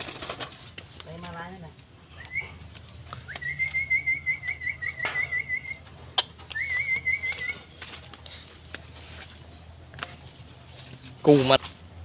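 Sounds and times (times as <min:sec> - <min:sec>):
high wavering whistle: 0:03.3 - 0:05.8.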